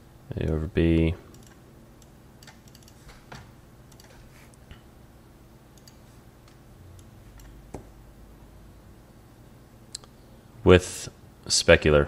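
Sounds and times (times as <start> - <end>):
steady low hum: 0.0 - 12.0
computer mouse clicks: 1.3 - 4.6, 5.8 - 7.9.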